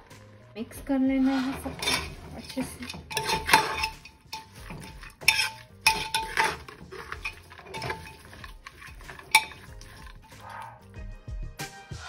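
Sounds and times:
metal spoon scraping pot: 1.1 - 11.0
spoon clinking on metal: 1.4 - 10.8.

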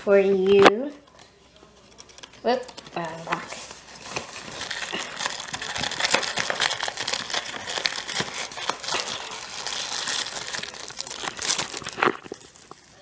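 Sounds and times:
snack wrappers crinkling: 1.0 - 13.0
hand rummaging in cardboard box: 2.8 - 13.0.

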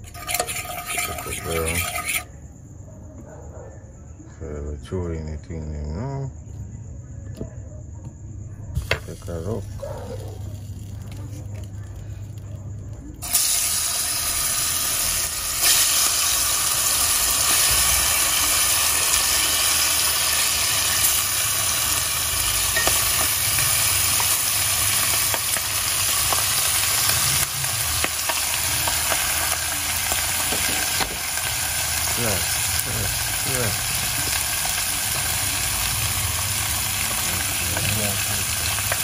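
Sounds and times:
loud sizzle in hot oil: 0.0 - 2.3, 13.2 - 39.0.

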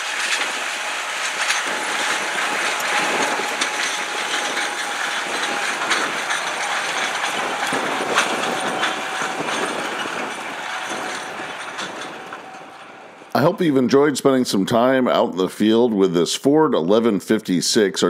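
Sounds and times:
clanks and rattles: 0.0 - 13.6
faint steady whine: 0.0 - 13.8
tractor diesel engine under load: 0.0 - 15.9.

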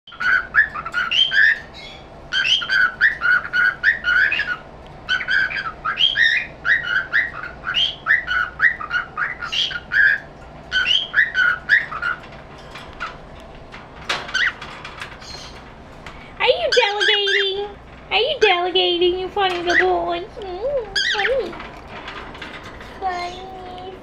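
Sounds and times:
cockatiel whistling and chirping: 0.1 - 12.2.

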